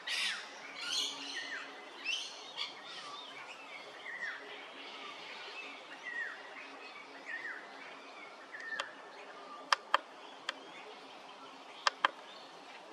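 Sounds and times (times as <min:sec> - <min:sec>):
sharp clicks: 0:09.7 - 0:10.6, 0:11.9 - 0:12.2.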